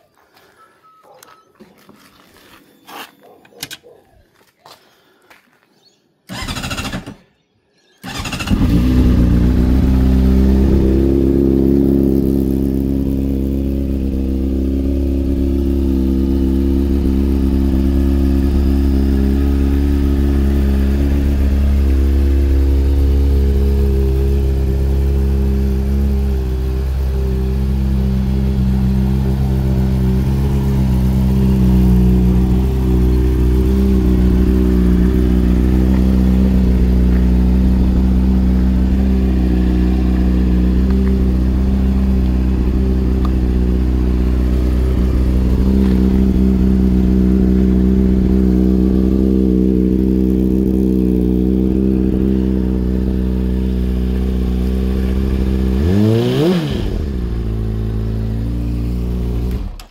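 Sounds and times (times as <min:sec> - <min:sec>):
motorcycle starter cranking: 0:06.3 - 0:07.2, 0:08.0 - 0:09.0
motorcycle engine idling: 0:08.1 - 0:59.9.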